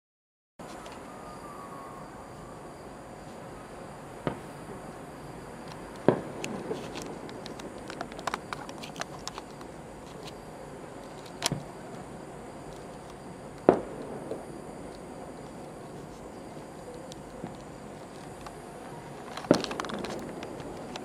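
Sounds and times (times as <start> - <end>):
distant firework booms: 4.2 - 4.9, 6.1 - 7.3, 13.7 - 14.6
faint crackling pops: 12.7 - 18.6.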